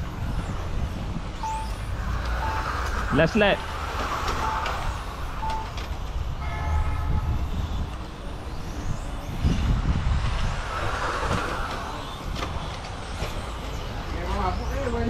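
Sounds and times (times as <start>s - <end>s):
rc car motors whining: 0.0s - 15.0s
wind buffeting microphone: 0.0s - 15.0s
steady tone: 0.6s - 6.5s.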